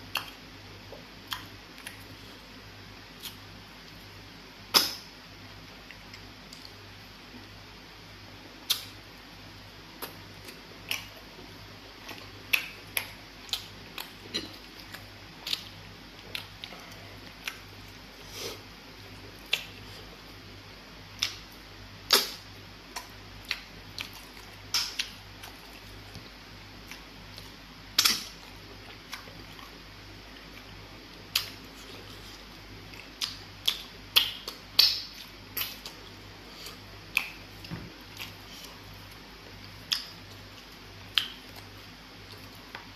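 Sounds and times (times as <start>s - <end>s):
steady low hum: 0.0s - 42.9s.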